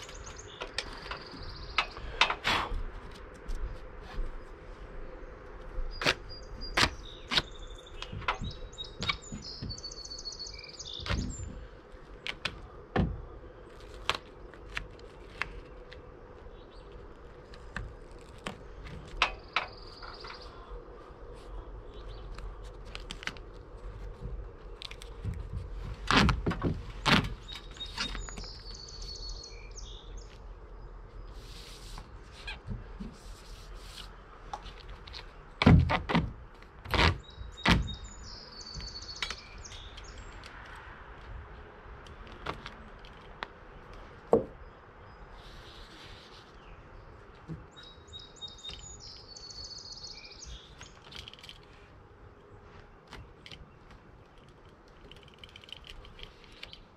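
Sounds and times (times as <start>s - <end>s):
songbird chirping: 0.0s - 56.9s
knocks and thumps on wood: 44.3s - 44.6s.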